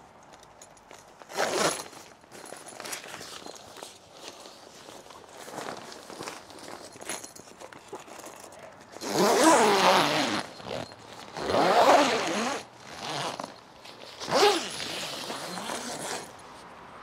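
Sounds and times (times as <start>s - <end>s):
zip being pulled on fabric: 1.3s - 2.0s, 9.0s - 16.4s.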